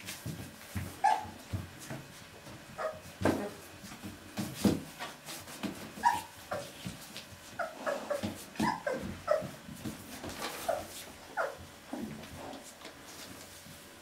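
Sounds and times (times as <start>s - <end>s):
puppies squeaking and whimpering: 1.0s - 1.4s, 2.8s - 3.6s, 6.0s - 6.8s, 7.5s - 9.6s, 10.2s - 11.6s.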